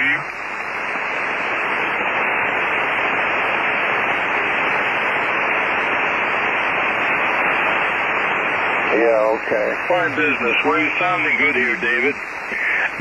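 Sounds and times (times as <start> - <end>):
radio static hiss: 0.0 - 13.0.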